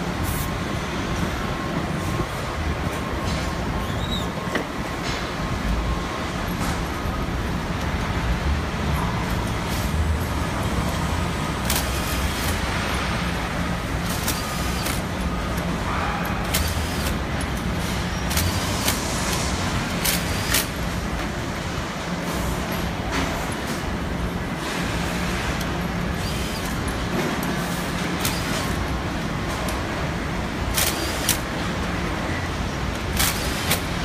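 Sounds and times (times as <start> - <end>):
low rumble of machinery: 0.0 - 34.0.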